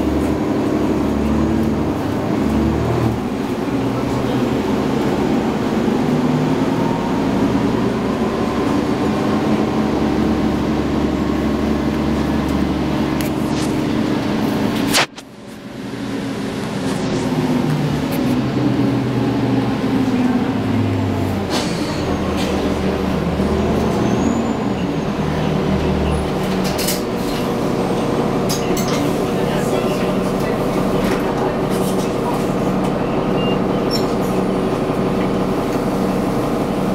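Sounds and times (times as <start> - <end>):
bus engine drone: 0.0 - 36.9
road rumble: 0.0 - 36.9
strong low hum: 12.2 - 21.3.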